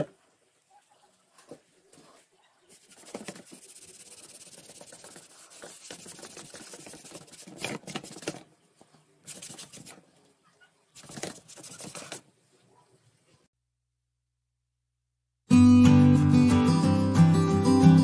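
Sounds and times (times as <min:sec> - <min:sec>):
pastel scratching on paper: 0:02.7 - 0:08.4, 0:09.3 - 0:10.0, 0:11.0 - 0:12.2.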